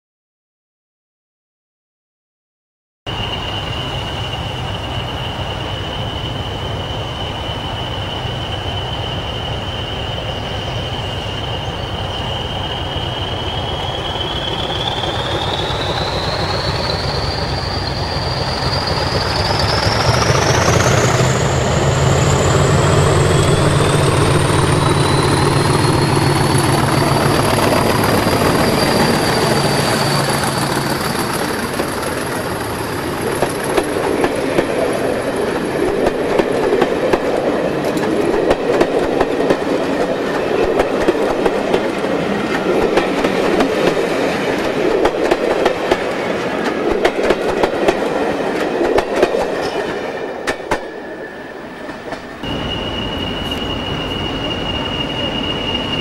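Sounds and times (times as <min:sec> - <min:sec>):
turbocharger whistle: 0:03.1 - 0:31.4, 0:52.4 - 0:56.0
train coaches rattling: 0:03.1 - 0:56.0.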